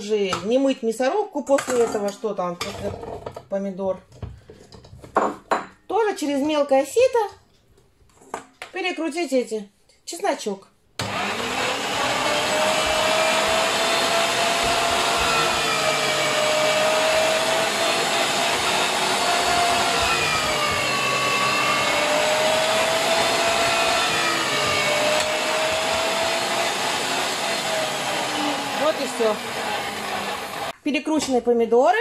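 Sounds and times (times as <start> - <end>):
electric meat grinder whining: 11.0 - 30.8.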